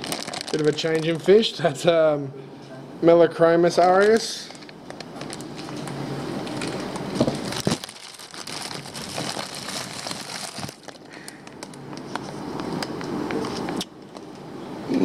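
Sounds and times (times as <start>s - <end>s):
plastic bags crinkling: 0.0s - 1.5s, 3.9s - 11.8s.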